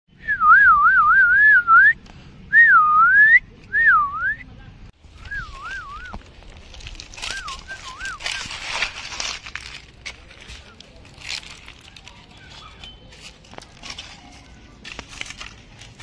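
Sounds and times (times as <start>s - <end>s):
person whistling a tune: 0.2s - 4.4s, 5.2s - 6.2s, 7.3s - 8.5s.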